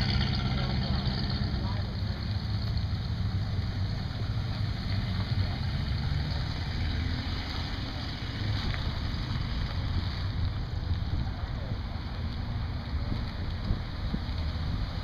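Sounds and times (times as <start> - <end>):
car engine running slowly: 0.0 - 15.0.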